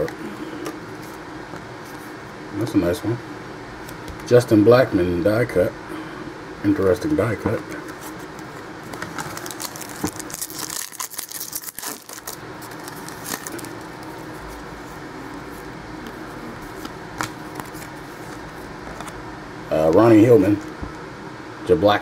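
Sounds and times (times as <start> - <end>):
cards rustling and clicking: 7.8 - 19.2.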